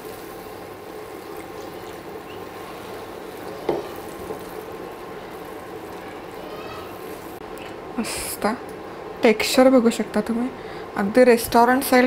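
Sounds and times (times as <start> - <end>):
gravy sizzling and bubbling in a pan: 0.0 - 8.0.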